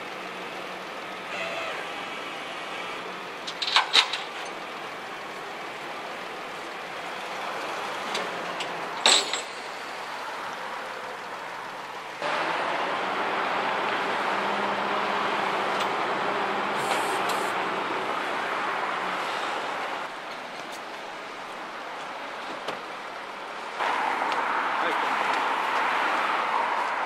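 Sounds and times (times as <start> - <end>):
truck engine running: 0.0 - 20.2
street traffic: 0.0 - 27.0
sharp metal clank: 9.0 - 9.7.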